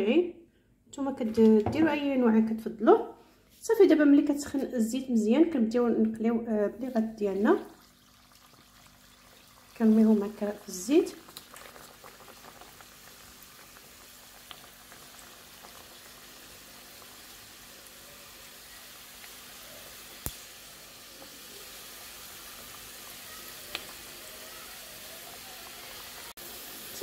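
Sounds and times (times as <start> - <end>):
dough sizzling in hot oil: 7.2 - 27.0.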